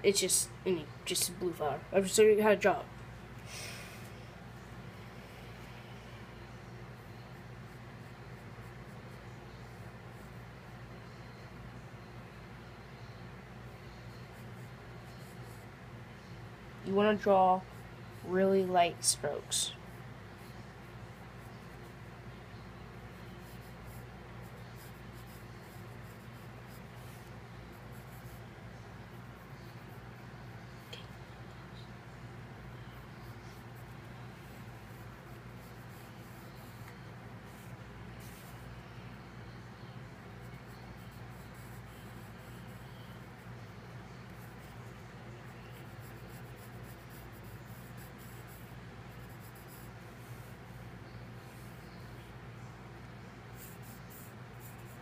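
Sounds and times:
steady low hum: 0.0 - 55.0
pencil scratching on paper: 7.0 - 11.4, 13.0 - 15.8, 16.9 - 31.2, 32.6 - 38.8, 40.2 - 52.4, 53.5 - 55.0.

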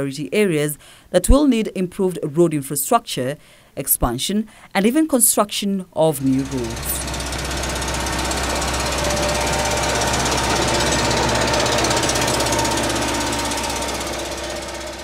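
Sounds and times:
diesel engine pulsing under load: 6.2 - 15.0.

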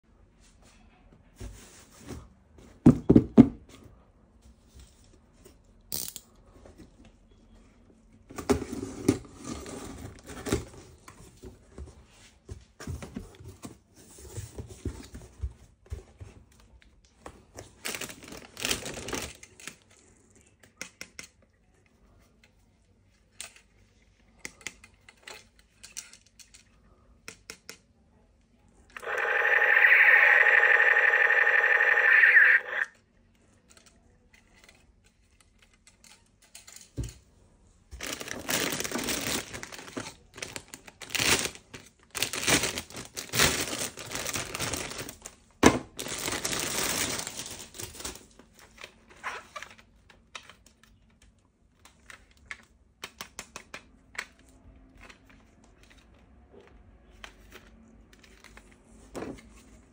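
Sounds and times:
packaging rustling and tearing: 17.8 - 19.9, 38.0 - 45.4, 46.0 - 49.8.

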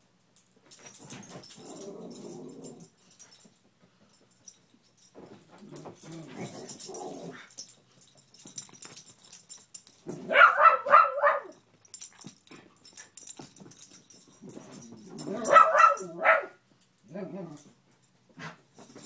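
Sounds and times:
dog growling: 1.6 - 2.9, 17.1 - 17.7
dog barking: 10.2 - 11.6, 15.4 - 16.6.

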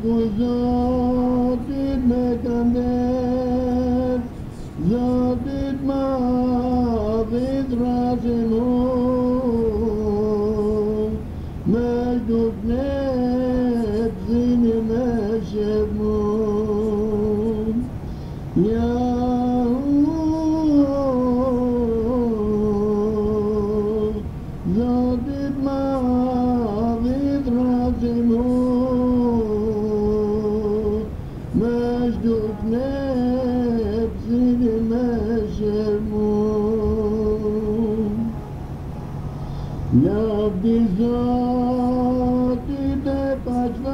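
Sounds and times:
person singing a devotional hymn: 0.0 - 43.9.

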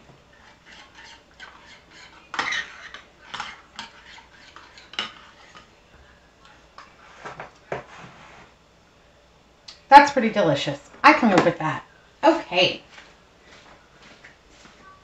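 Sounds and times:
metal spoon stirring in bowl: 0.3 - 5.7.

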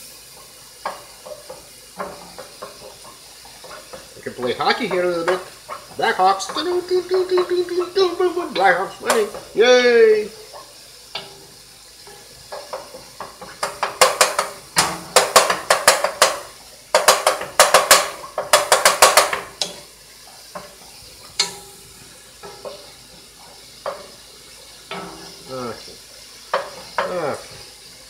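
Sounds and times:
faint sizzle: 0.0 - 28.0
wooden spoon scraping a pot: 0.4 - 9.6.

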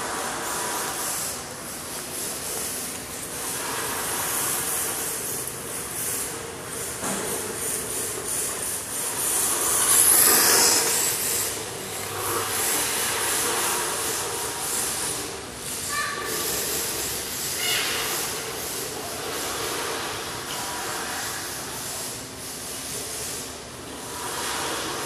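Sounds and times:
toy car motor whining: 9.2 - 12.2.

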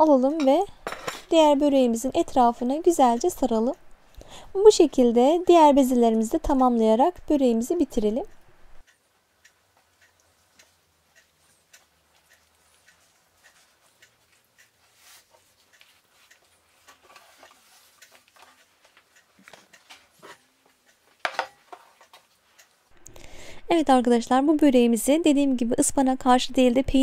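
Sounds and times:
hands rolling dough: 9.6 - 22.8.

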